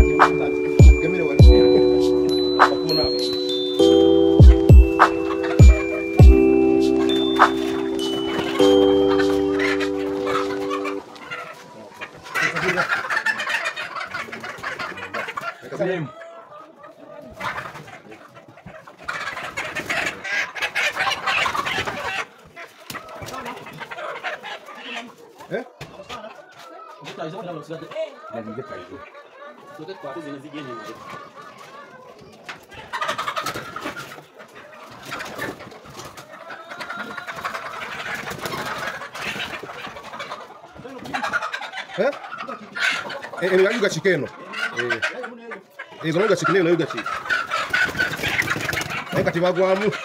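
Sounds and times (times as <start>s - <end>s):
chickens clucking: 0.0s - 50.0s
chicken squawking: 7.8s - 25.5s, 27.8s - 50.0s
wings flapping: 47.6s - 49.1s.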